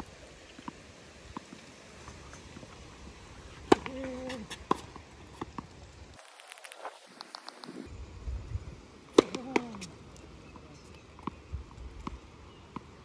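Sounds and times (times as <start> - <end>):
racket striking tennis ball: 3.6 - 5.7, 9.1 - 9.9
distant ball strikes and bounces: 9.2 - 9.9.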